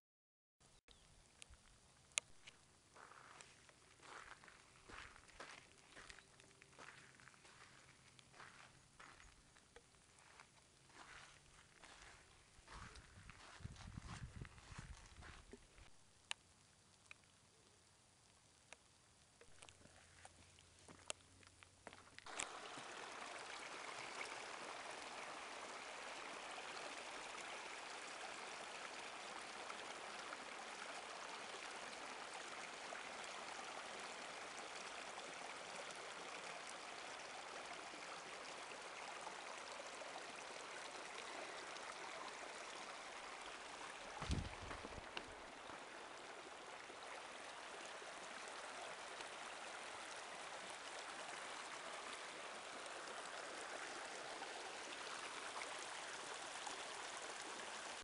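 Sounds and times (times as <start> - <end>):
water rushing over gravel: 3.0 - 9.4, 21.9 - 58.0
brief thump: 44.2 - 44.9.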